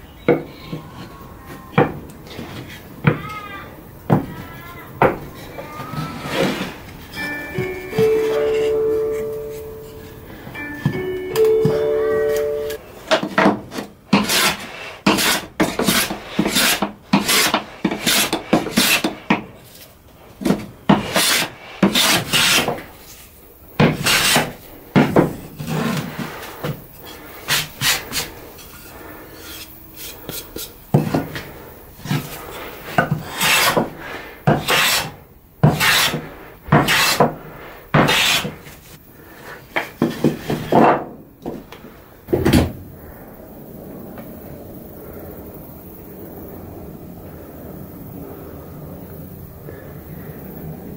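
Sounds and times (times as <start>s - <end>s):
hand plane shaving wood: 13.4s - 19.8s, 20.5s - 22.8s, 23.8s - 24.6s, 32.0s - 37.3s, 38.0s - 38.8s.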